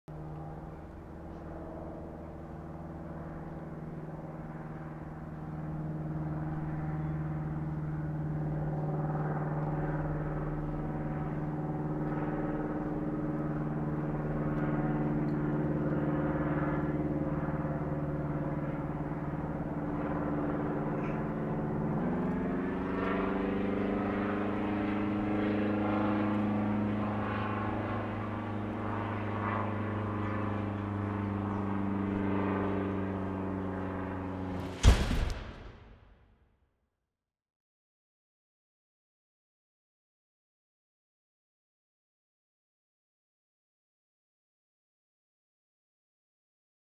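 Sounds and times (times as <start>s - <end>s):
light plane engine droning: 0.1s - 36.3s.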